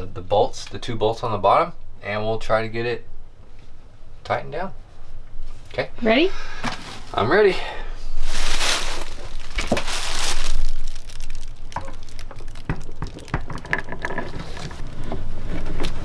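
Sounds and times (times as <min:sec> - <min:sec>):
plastic bags and towels rustling: 0:08.2 - 0:14.9.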